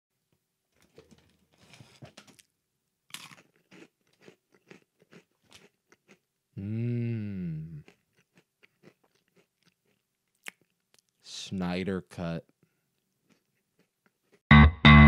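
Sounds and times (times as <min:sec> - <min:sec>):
crunchy chewing: 0:03.1 - 0:06.2, 0:07.8 - 0:11.2, 0:12.6 - 0:14.4
snack bag crinkling: 0:03.1 - 0:06.2
person humming: 0:06.6 - 0:07.9.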